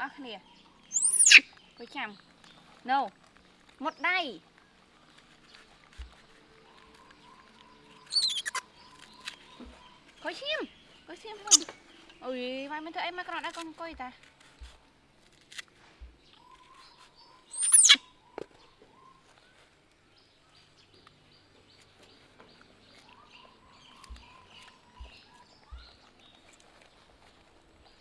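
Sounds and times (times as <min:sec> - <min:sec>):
faint high chirping: 0:00.1 - 0:02.2, 0:05.2 - 0:12.6, 0:16.2 - 0:21.1, 0:21.7 - 0:28.0
high-pitched animal call: 0:00.9 - 0:01.5, 0:08.0 - 0:08.7, 0:17.5 - 0:18.1.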